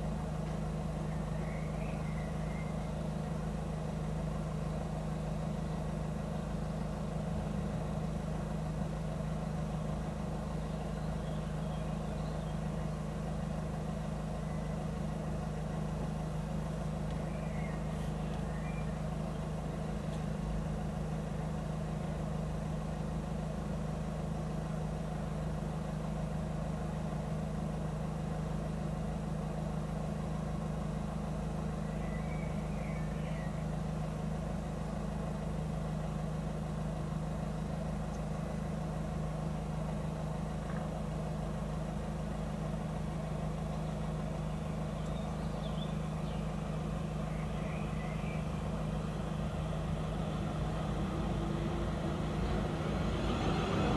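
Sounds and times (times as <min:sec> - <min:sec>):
vehicle engine idling: 0:00.0 - 0:53.9
faint bird chirps: 0:00.8 - 0:03.4, 0:09.7 - 0:13.6, 0:14.2 - 0:15.9, 0:16.8 - 0:20.8, 0:31.6 - 0:34.0, 0:43.5 - 0:50.2.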